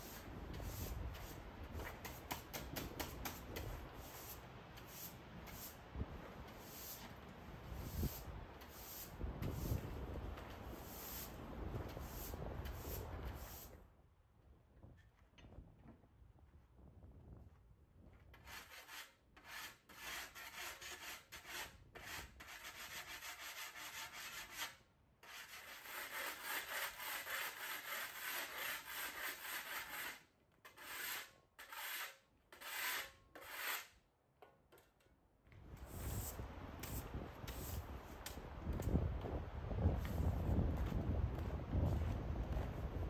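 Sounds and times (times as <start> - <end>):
scraper rasping on concrete floor: 0.0 - 5.8, 6.5 - 10.0, 10.6 - 13.8, 18.3 - 34.0, 35.8 - 38.4.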